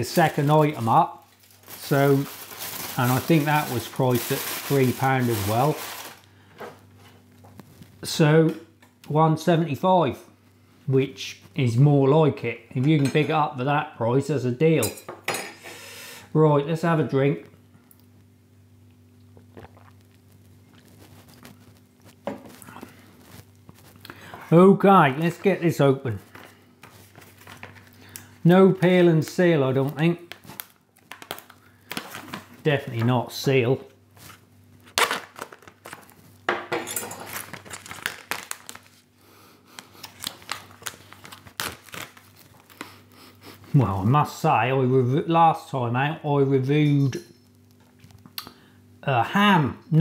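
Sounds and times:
plastic tray crinkling: 0:00.0 - 0:06.3, 0:34.2 - 0:36.3, 0:37.1 - 0:39.1, 0:40.0 - 0:42.8
faint room hum: 0:00.0 - 0:50.0
knife stabbing plastic film: 0:00.1 - 0:06.3, 0:34.9 - 0:36.2, 0:37.3 - 0:38.9, 0:40.0 - 0:42.8
man gulping water: 0:19.2 - 0:20.3.

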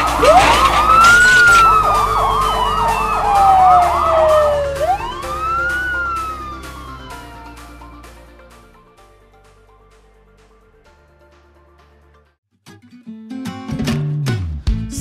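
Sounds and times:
emergency vehicle siren: 0:00.0 - 0:08.7.

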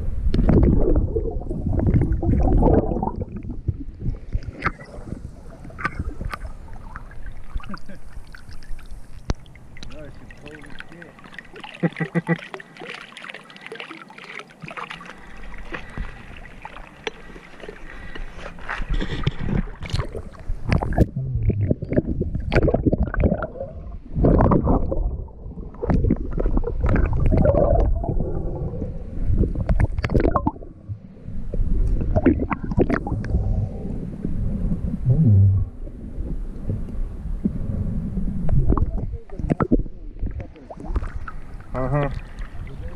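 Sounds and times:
underwater gurgling and bubbling: 0:00.0 - 0:42.9
river water sloshing: 0:04.2 - 0:21.0.

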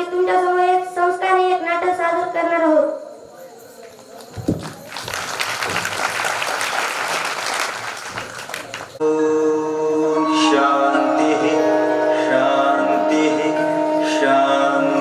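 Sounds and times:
audience applauding: 0:04.4 - 0:09.0
music with long held notes: 0:09.0 - 0:15.0.

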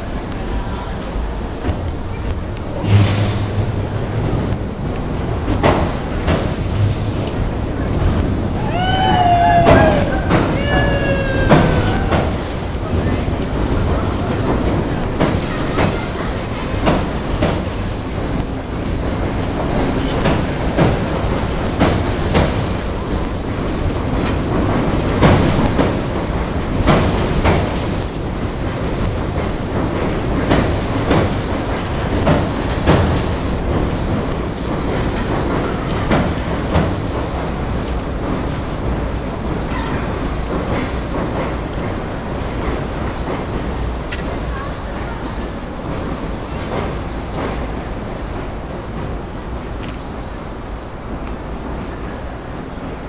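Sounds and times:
train rumble: 0:00.0 - 0:53.0
train wheels knocking over rail joints: 0:01.6 - 0:50.2
falling squeal: 0:08.6 - 0:12.4.

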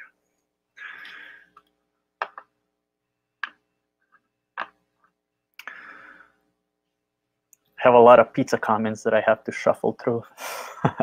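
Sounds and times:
breath into microphone: 0:05.6 - 0:06.4.

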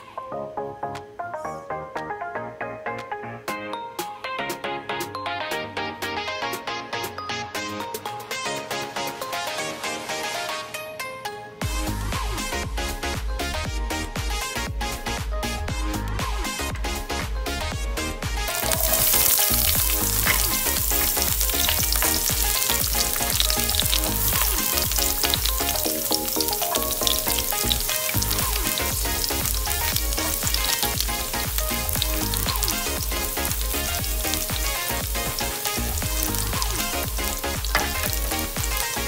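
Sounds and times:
music playing: 0:00.0 - 0:39.0
garlic sizzling in hot oil: 0:18.5 - 0:39.0.

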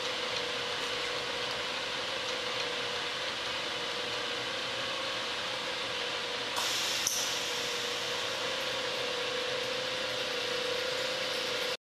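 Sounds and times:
sharp click: 0:06.6 - 0:07.3
short hissing burst: 0:06.6 - 0:08.1
drilling machine humming: 0:06.6 - 0:11.8.

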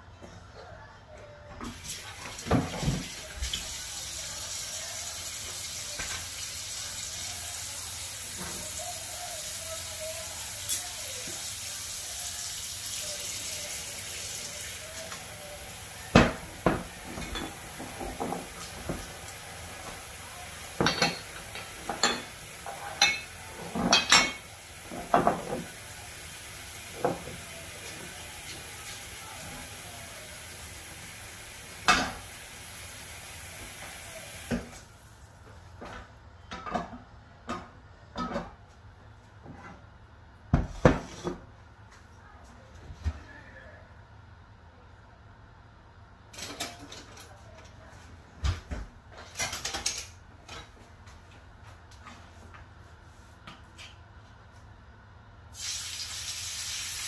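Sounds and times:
gas hob hissing: 0:01.7 - 0:34.9, 0:55.5 - 0:57.0
glass bottle and pan clinking: 0:20.8 - 0:22.3, 0:23.0 - 0:24.5.

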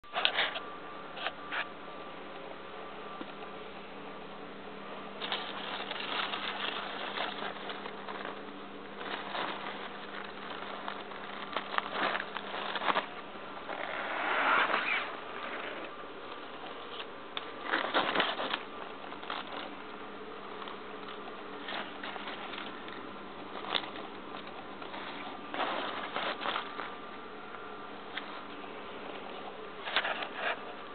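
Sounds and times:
low hum and hiss: 0:00.0 - 0:30.9
rustling handling noise: 0:00.0 - 0:30.9
irregular crackles: 0:04.8 - 0:30.9.

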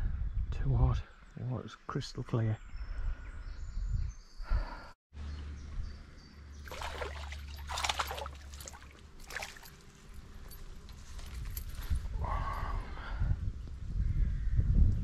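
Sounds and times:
water splashes: 0:06.6 - 0:10.0.

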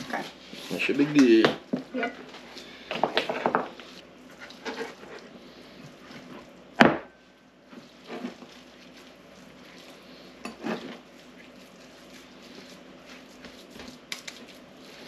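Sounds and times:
wet squishing of ground meat: 0:07.6 - 0:15.0.

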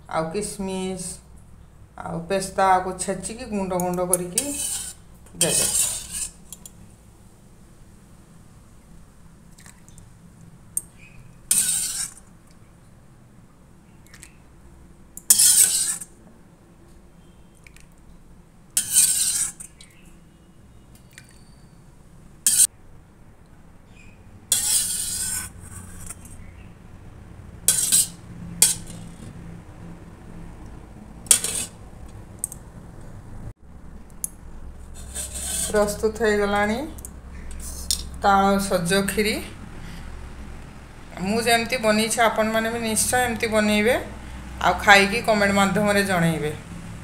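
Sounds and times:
spoon scraping a steel pot: 0:03.7 - 0:06.8, 0:10.8 - 0:12.3, 0:15.2 - 0:16.1, 0:18.8 - 0:19.9, 0:22.4 - 0:22.7, 0:24.5 - 0:26.4, 0:27.7 - 0:29.4, 0:31.2 - 0:31.8, 0:34.8 - 0:36.0.

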